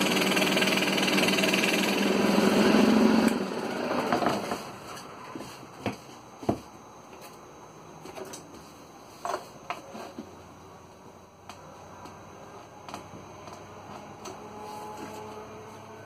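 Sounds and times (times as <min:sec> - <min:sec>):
wooden cut-out knocking and scraping: 0:03.9 - 0:04.7.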